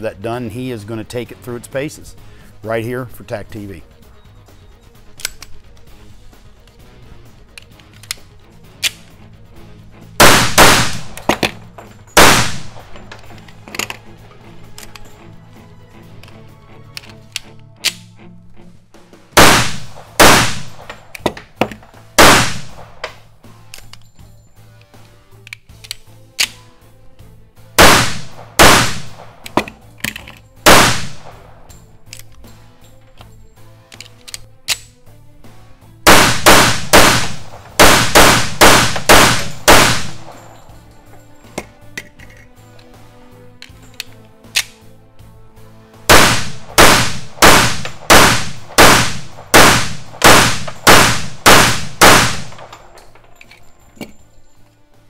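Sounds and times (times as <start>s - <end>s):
pistol shots echoing indoors: 10.2s - 11.6s, 12.2s - 13.2s, 19.4s - 21.1s, 22.1s - 23.2s, 27.8s - 29.7s, 30.6s - 31.7s, 36.0s - 40.8s, 46.1s - 53.2s
sharp metallic clicks: 46.1s - 54.1s.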